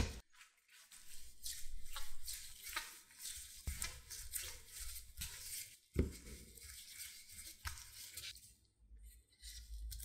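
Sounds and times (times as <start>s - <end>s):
rolling pin rubbing on dough: 0.8s - 8.4s.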